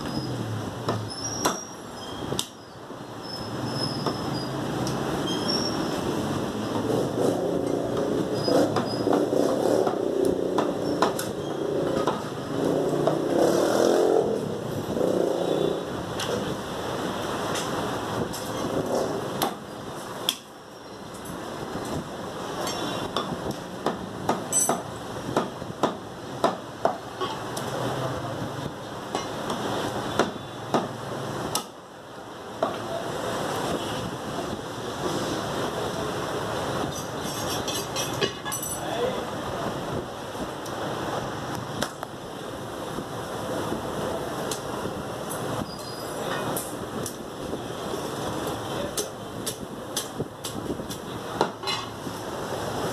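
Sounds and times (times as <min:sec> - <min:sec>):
traffic drone: 0:00.0 - 0:52.9
cleaver chopping on wooden block: 0:09.8 - 0:11.3, 0:23.2 - 0:27.0, 0:30.2 - 0:30.9, 0:31.5 - 0:31.7.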